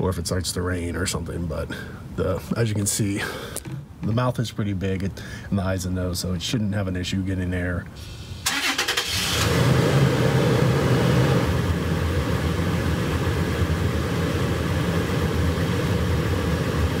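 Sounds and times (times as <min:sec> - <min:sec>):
car engine idling: 0:08.4 - 0:17.0.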